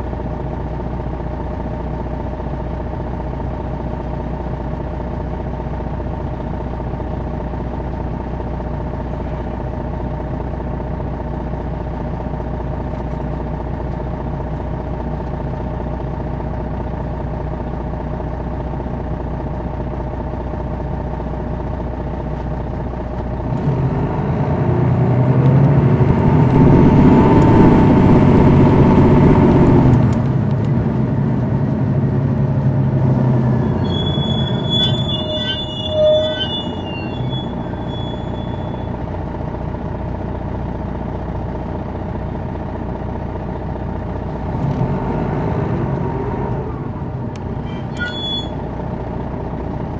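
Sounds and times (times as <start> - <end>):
diesel engine running: 0.0 - 49.9
high engine whistle: 33.1 - 39.0, 47.6 - 48.7.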